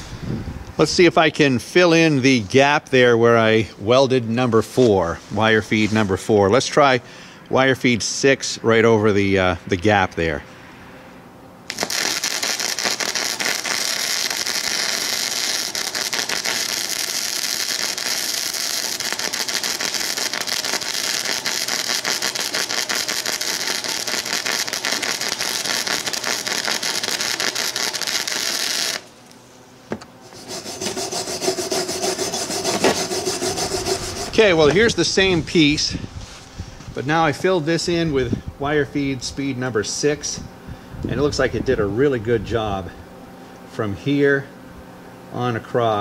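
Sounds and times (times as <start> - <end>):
crackling welding arc: 11.6 - 29.4, 30.3 - 35.9
wire brush scrubbing weld: 11.7 - 29.2, 30.2 - 35.6.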